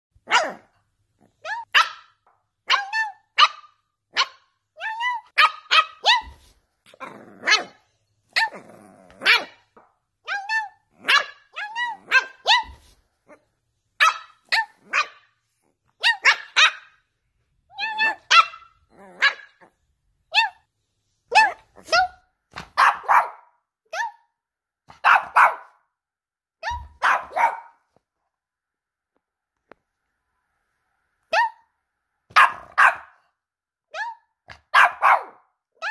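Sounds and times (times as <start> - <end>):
puppy yapping: 1.3 - 13.4, 15.9 - 17.0, 17.7 - 19.7, 21.3 - 24.2, 24.9 - 25.8, 26.6 - 27.8, 32.3 - 33.2, 33.9 - 35.9
puppy growling: 6.9 - 7.8, 8.4 - 9.6.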